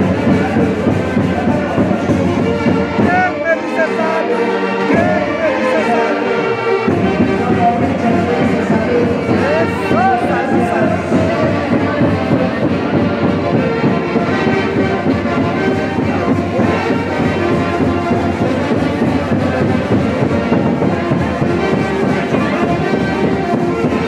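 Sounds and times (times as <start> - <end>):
brass band playing: 0.0 - 24.0.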